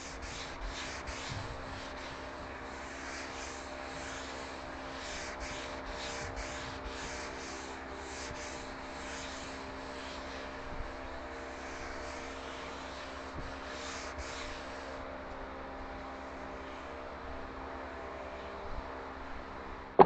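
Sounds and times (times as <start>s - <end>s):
pad rubbing wooden board: 0.0s - 9.4s.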